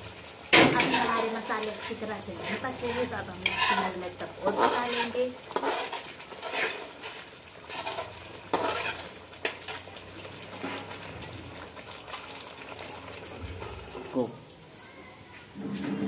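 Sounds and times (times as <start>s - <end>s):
paste sizzling: 0.0s - 14.2s
ladle scraping a pan: 0.6s - 11.1s.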